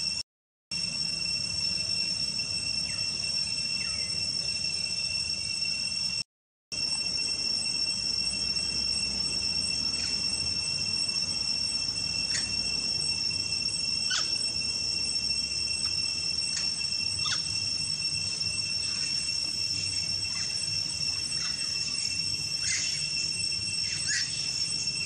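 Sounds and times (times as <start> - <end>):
insects buzzing drone: 0.0 - 6.2, 6.8 - 25.0
squeaky falling chirps: 7.0 - 25.0.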